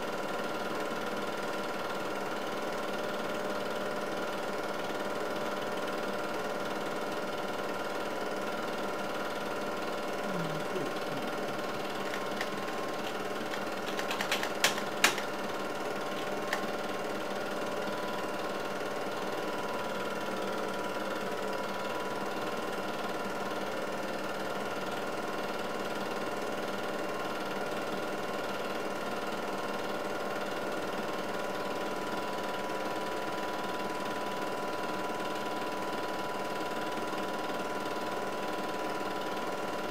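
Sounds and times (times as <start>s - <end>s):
film projector whirring: 0.0s - 39.9s
sharp clicks: 12.0s - 15.4s.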